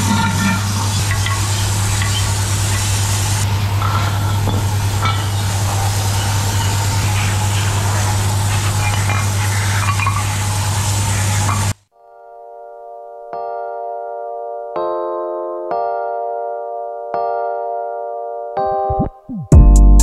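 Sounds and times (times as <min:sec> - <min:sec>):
machine humming: 0:00.0 - 0:11.8
continuous hiss: 0:00.0 - 0:11.9.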